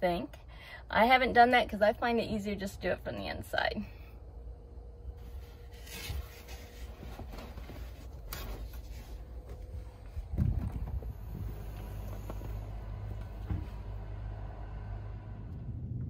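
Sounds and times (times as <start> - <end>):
camper roof knocks and rustling: 6.9 - 13.9
heavy low thump: 10.1 - 14.0.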